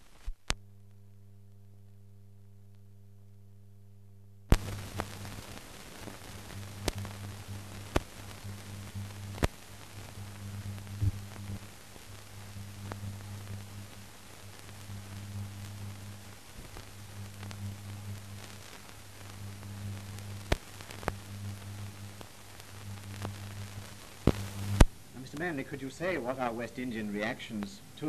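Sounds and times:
film soundtrack hiss: 0:00.0 - 0:28.0
low electrical hum: 0:00.0 - 0:28.0
clicks and pops: 0:04.5 - 0:25.0.

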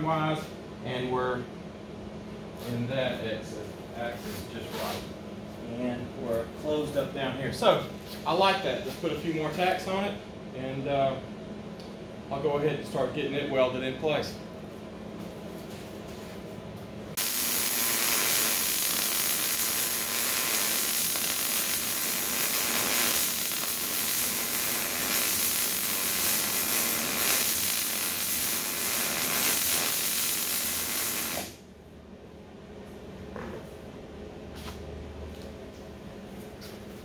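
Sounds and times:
welding arc crackling hiss: 0:17.1 - 0:31.6.

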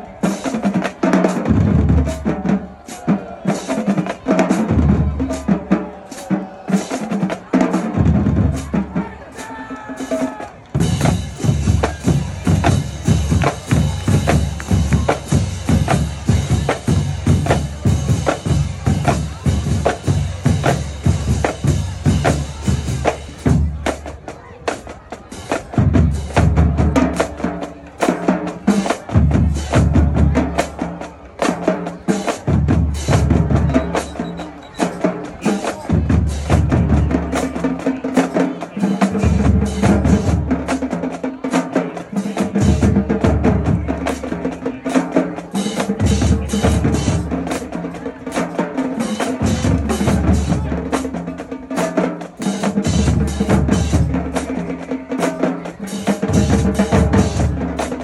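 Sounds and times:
snare and tenor drums: 0:00.0 - 0:58.0
bass drums: 0:10.8 - 0:24.1, 0:25.6 - 0:27.5, 0:28.8 - 0:30.8, 0:32.3 - 0:34.4, 0:35.8 - 0:37.6, 0:45.9 - 0:47.6, 0:49.4 - 0:51.1, 0:52.6 - 0:54.6, 0:56.2 - 0:58.0.

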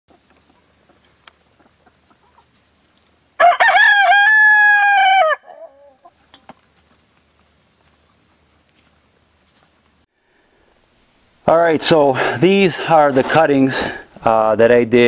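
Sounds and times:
rooster crowing: 0:03.4 - 0:06.1.

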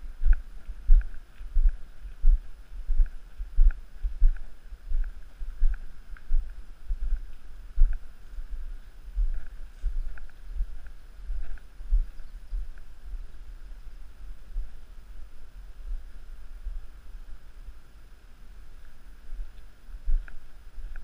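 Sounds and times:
footsteps on gravel: 0:00.0 - 0:12.8.

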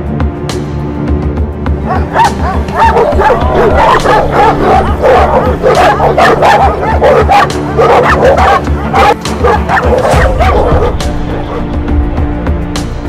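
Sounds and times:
background music: 0:00.0 - 0:13.0
dogs barking and yelping: 0:01.8 - 0:11.8.

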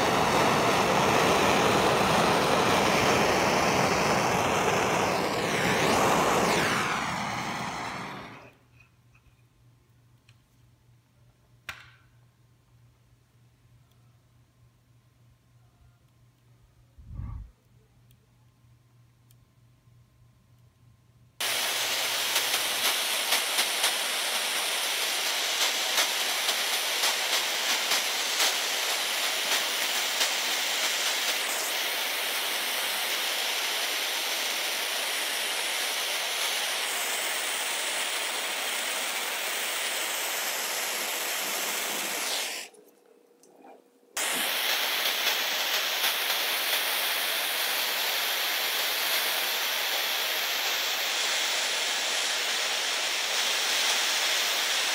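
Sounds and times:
propane torch hissing: 0:00.0 - 0:08.7, 0:21.4 - 0:42.8, 0:44.2 - 0:54.9.

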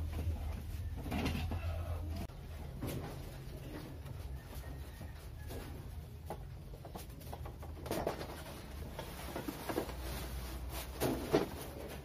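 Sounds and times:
cardboard rustling and scraping: 0:07.8 - 0:12.0.

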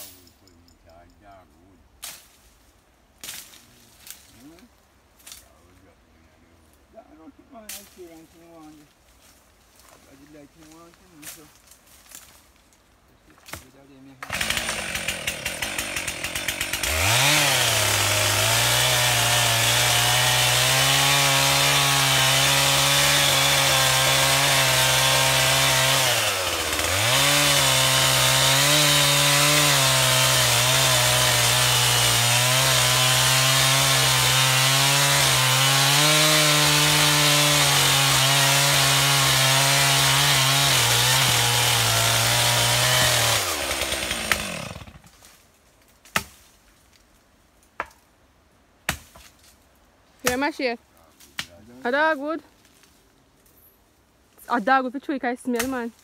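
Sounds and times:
chainsaw cutting wood: 0:13.5 - 0:45.3, 0:50.2 - 0:50.6.

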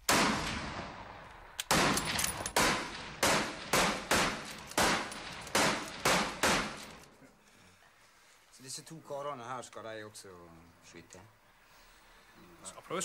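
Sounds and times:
rifle shots with ringing echo: 0:00.0 - 0:07.1.

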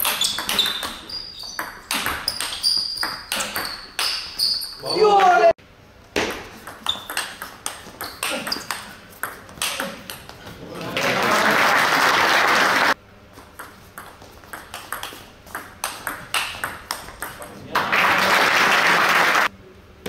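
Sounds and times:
spectators applauding: 0:10.7 - 0:13.0, 0:17.7 - 0:19.5.

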